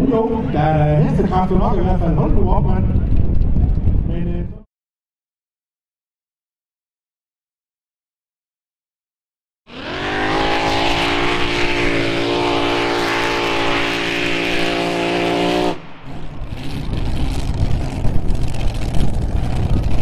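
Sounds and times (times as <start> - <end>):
engine low rough rumble: 0.0 - 4.7, 10.5 - 20.0
racing engine screaming: 9.7 - 17.6.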